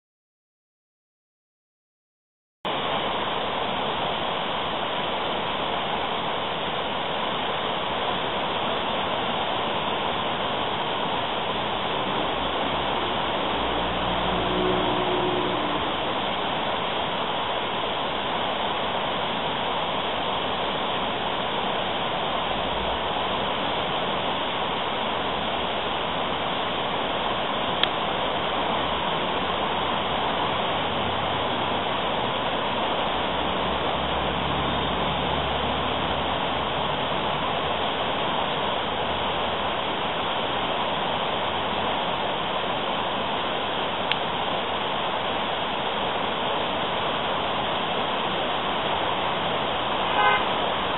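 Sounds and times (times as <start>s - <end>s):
white water rushing: 2.7s - 50.9s.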